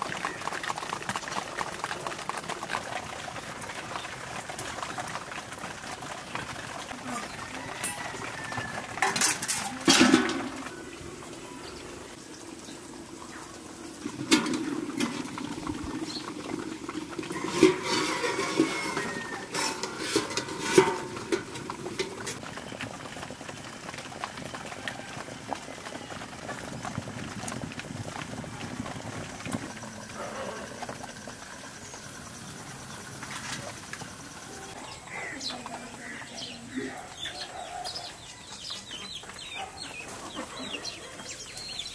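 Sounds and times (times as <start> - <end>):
water bubbling and crackling: 0.0 - 36.8
metal lid clanking on pot: 8.8 - 10.7, 14.2 - 15.5, 17.2 - 22.4.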